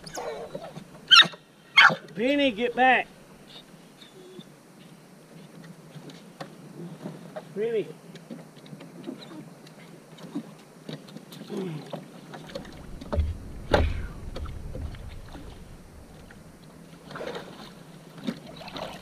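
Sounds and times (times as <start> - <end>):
water sloshing against hull: 5.3 - 19.0.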